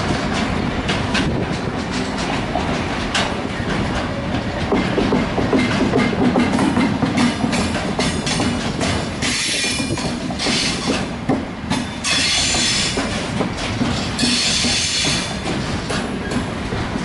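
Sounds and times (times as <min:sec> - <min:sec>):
train wheels clattering over rail joints: 0:00.0 - 0:17.0
train wheels squealing: 0:09.2 - 0:11.1, 0:11.8 - 0:13.3, 0:14.0 - 0:16.4.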